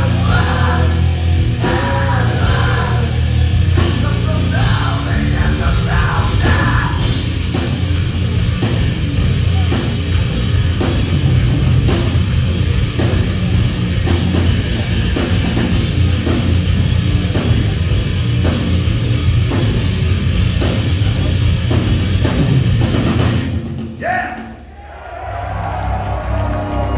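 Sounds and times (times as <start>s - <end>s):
singer's voice: 0.0s - 7.3s, 24.0s - 24.7s
heavy metal band playing live: 0.0s - 26.9s.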